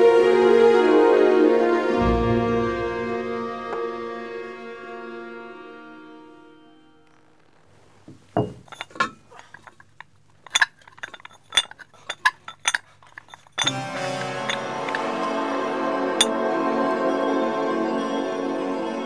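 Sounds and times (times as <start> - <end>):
background music: 0.0 - 7.4, 13.6 - 19.0
dumbbell plates clinking: 8.1 - 15.0.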